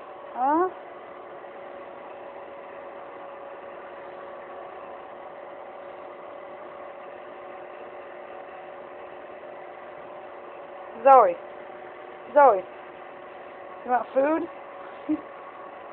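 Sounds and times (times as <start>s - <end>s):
steady mechanical hum: 0.0s - 15.9s.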